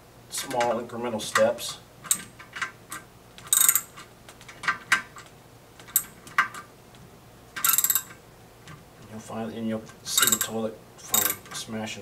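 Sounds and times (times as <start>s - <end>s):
ratchet wrench clicking: 3.5s - 4.0s, 7.6s - 8.2s, 10.2s - 10.6s, 11.2s - 11.4s.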